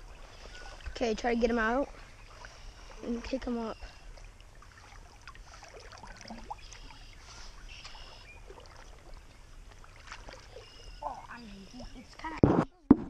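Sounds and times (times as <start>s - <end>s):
water splashing from wading: 0.0s - 12.4s.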